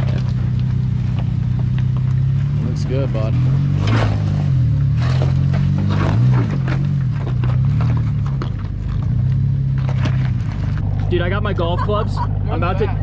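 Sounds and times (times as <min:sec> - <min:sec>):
truck engine running: 0:00.0 - 0:13.0
tyres crunching rock and gravel: 0:00.0 - 0:13.0.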